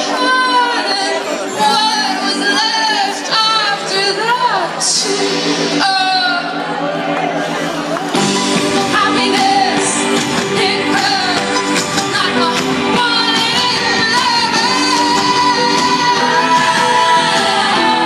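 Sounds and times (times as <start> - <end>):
woman singing: 0.0 - 6.6, 8.8 - 18.0
live rock band playing: 7.4 - 18.0.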